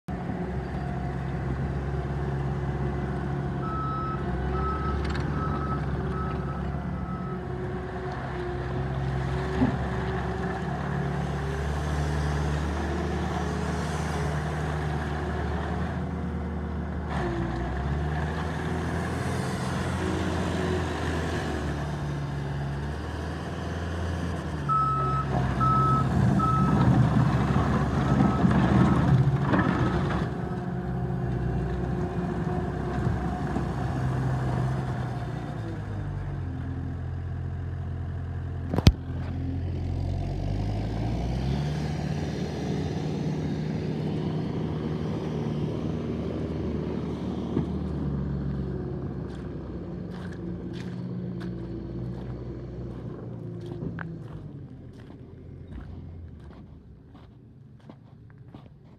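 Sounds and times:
diesel engine of track loader: 0.1s - 58.9s
backup alarm beeps: 24.7s - 26.8s.

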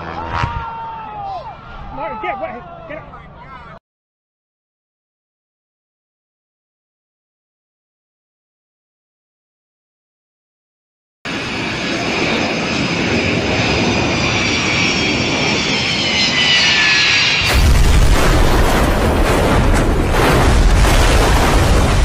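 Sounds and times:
jet engines whining: 11.3s - 20.5s
loud plane crash: 11.3s - 22.0s
heavy rumble with cracking: 17.4s - 22.0s.

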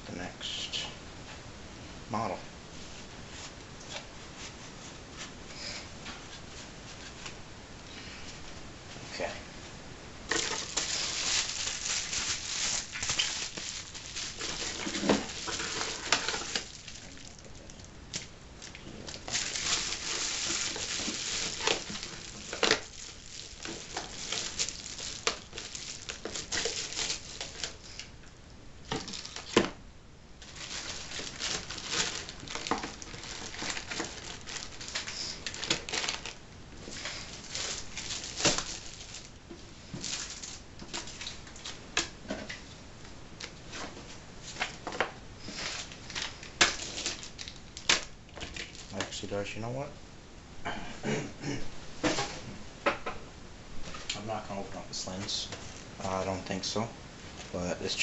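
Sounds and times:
bubble wrap crinkling: 10.3s - 28.2s, 28.8s - 29.8s, 30.4s - 42.7s, 43.4s - 49.5s.

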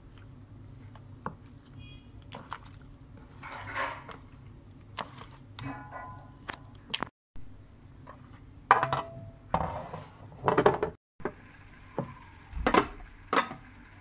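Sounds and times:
kitchenware knocking and clattering: 8.7s - 11.0s.

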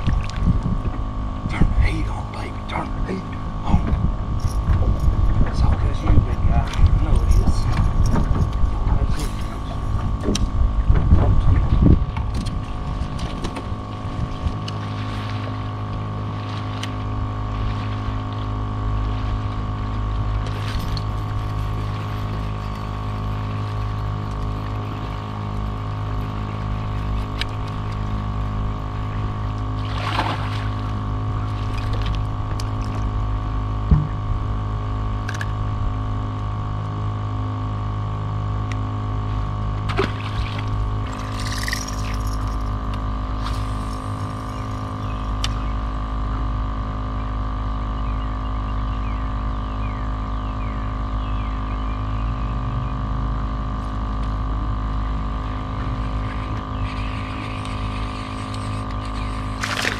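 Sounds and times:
water sloshing against hull: 0.0s - 51.1s, 53.4s - 59.9s
trolling motor electric hum: 0.0s - 59.9s
knocks on boat: 10.2s - 12.4s, 33.8s - 34.3s.

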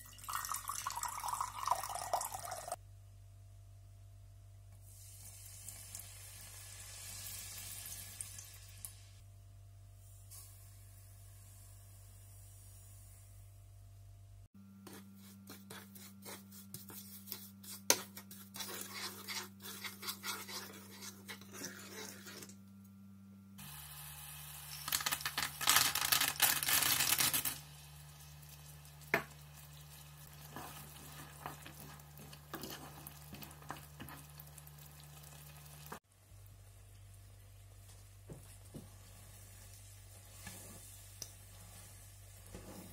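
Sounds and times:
syrup sizzling and bubbling: 4.8s - 9.2s, 27.0s - 42.9s
spatula scraping pan: 14.9s - 22.6s, 30.3s - 34.4s, 40.2s - 42.9s
almonds rattling into pan: 24.7s - 27.6s.

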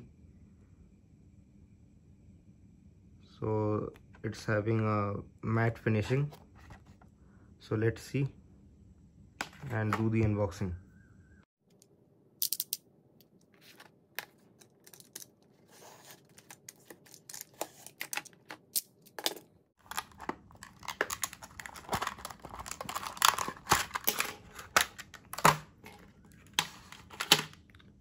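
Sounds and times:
stiff plastic crackling: 19.8s - 27.9s.

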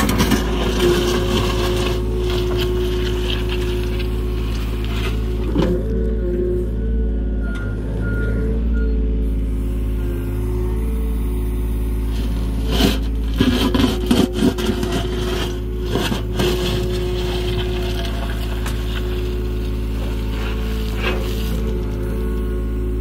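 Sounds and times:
bucket scraping through stony soil: 0.0s - 5.9s, 12.0s - 22.6s
diesel engine running: 0.0s - 23.0s.

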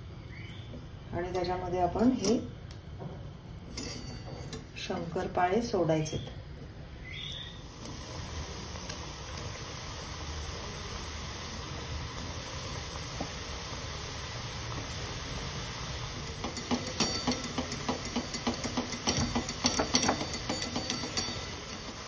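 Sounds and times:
dough sizzling in hot oil: 6.8s - 22.0s
skimmer clinking against pan: 16.4s - 22.0s.

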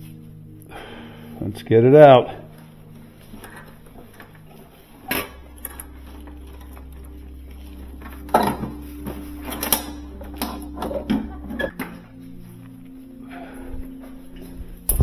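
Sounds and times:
low steady hum: 0.0s - 15.0s
metal clanks and knocks: 8.0s - 12.0s.

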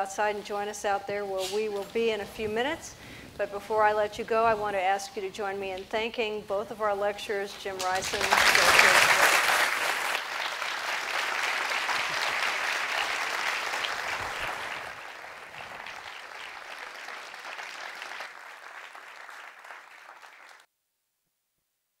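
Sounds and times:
audience applauding: 7.8s - 20.7s.

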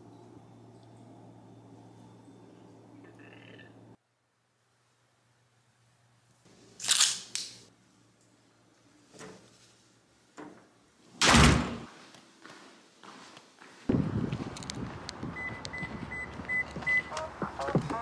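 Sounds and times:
door shutting with a thud: 11.2s - 11.9s.

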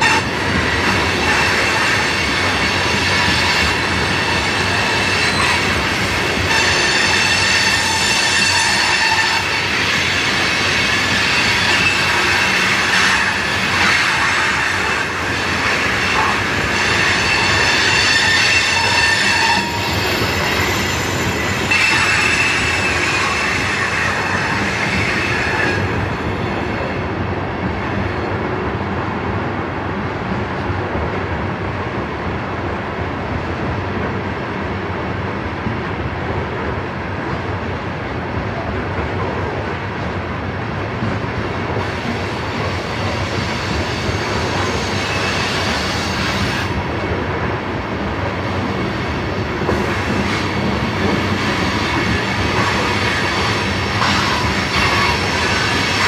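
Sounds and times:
rumble of train wheels: 0.0s - 56.0s
train wheels squealing: 1.2s - 26.8s, 42.0s - 46.8s, 51.3s - 56.0s.

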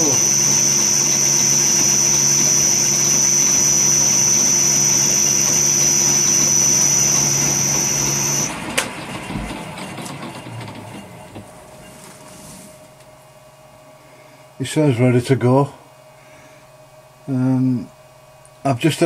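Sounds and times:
milling machine whine and hum: 0.0s - 15.0s
spindle coasting down: 0.1s - 12.8s.

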